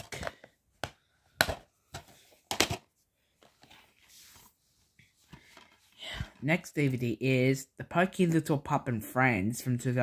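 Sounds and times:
plastic cases clicking and knocking: 0.0s - 2.9s
soft rustling: 3.3s - 6.0s.

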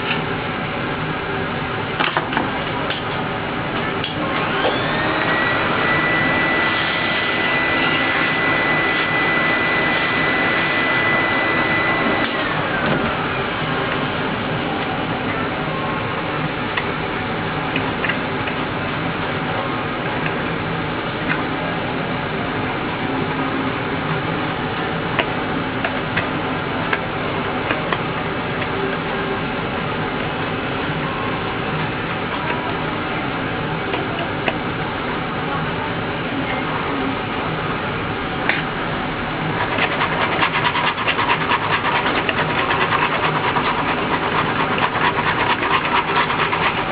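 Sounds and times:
high whine: 0.0s - 46.9s
steady background hum: 0.0s - 46.9s
vacuum cleaner running: 4.0s - 17.4s, 37.0s - 46.9s.

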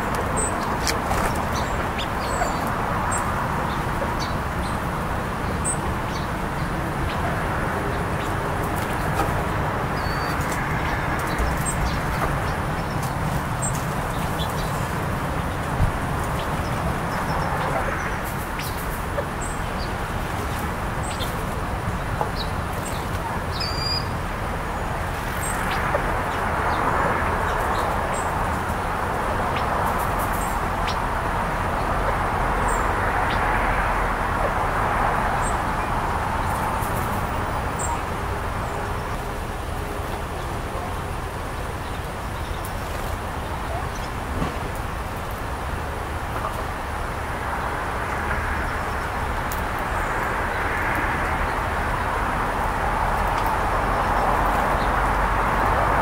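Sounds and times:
songbird chirps: 0.1s - 31.9s
outdoor rushing noise: 44.0s - 56.0s.

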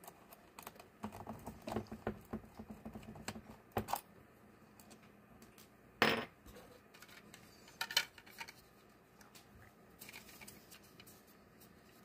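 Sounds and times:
small parts clattering on wooden desk: 6.0s - 8.6s.

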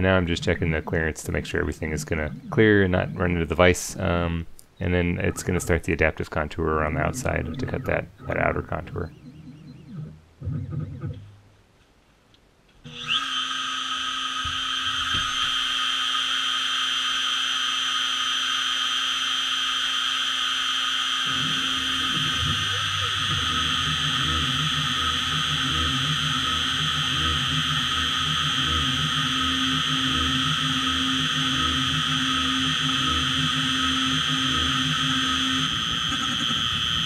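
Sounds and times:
mill spindle whine: 0.0s - 11.3s, 12.8s - 37.0s
pulsing cutting sound: 12.9s - 37.0s.

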